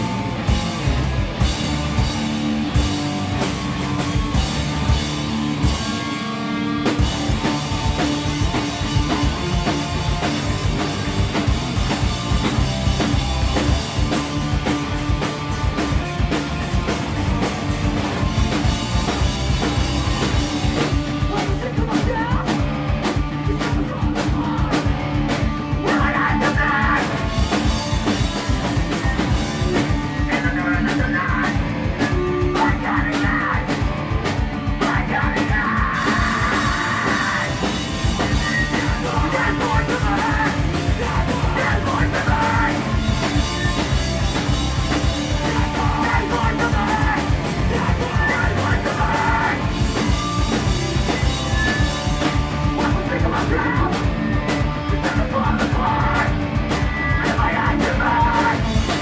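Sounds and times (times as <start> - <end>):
bass guitar: 0.0 - 59.0
distorted guitars: 0.0 - 59.0
driving drums: 0.0 - 59.0
vocalist screaming: 34.8 - 37.7, 45.6 - 49.7.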